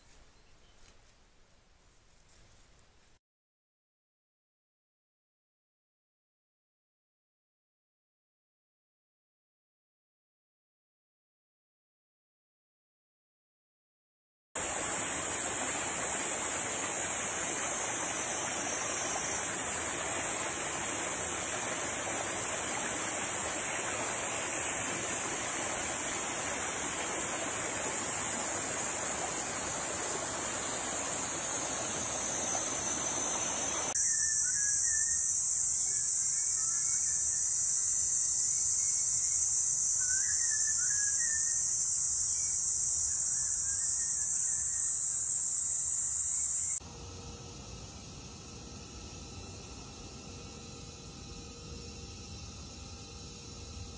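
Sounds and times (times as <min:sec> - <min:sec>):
rushing hiss: 0:14.6 - 0:34.6
cicadas buzzing: 0:14.6 - 0:53.9
faint chirps: 0:15.6 - 0:46.8.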